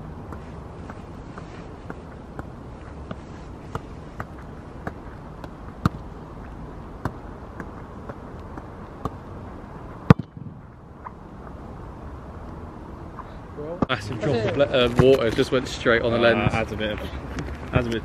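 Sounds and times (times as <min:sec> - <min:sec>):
low background noise: 0:00.0 - 0:18.0
football being kicked: 0:01.8 - 0:06.1, 0:07.0 - 0:09.2, 0:10.0 - 0:10.6.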